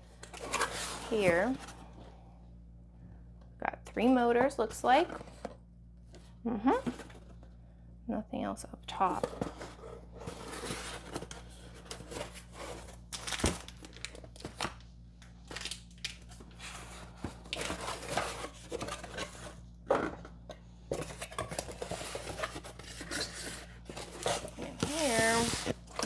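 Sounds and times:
cardboard flaps scraping and rustling: 21.6 - 25.9.

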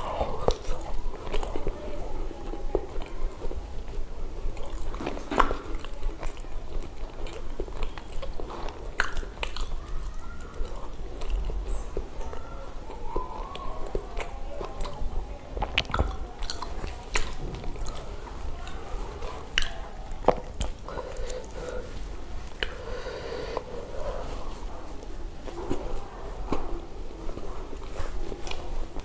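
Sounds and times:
chewing with wet mouth smacks: 0.0 - 22.9, 23.6 - 29.0.

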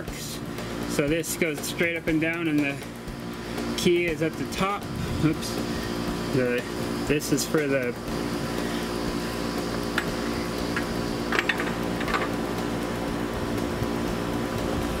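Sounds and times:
steady machine hum: 0.0 - 15.0
metal parts clinking: 11.3 - 12.3.

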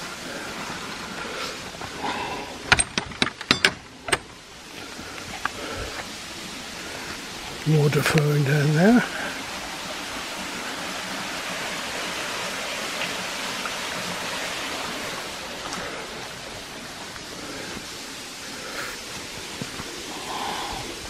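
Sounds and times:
small stream flowing: 0.0 - 21.0.

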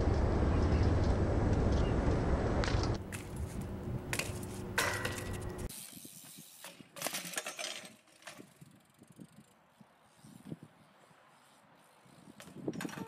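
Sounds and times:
metal bike frame clanking: 3.1 - 5.7
bike knocking against concrete ledge: 4.1 - 5.7.

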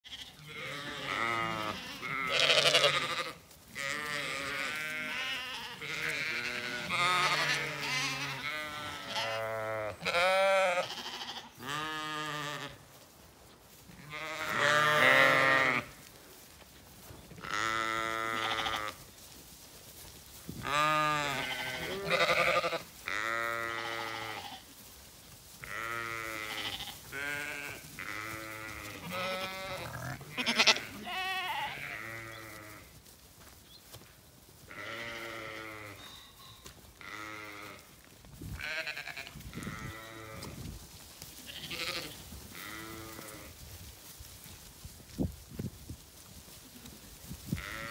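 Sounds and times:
sheep bleating: 0.0 - 12.8, 13.9 - 16.0, 17.4 - 19.0, 20.6 - 24.7, 25.6 - 32.9, 34.7 - 37.9, 38.6 - 40.6, 41.4 - 43.5, 47.6 - 47.9.

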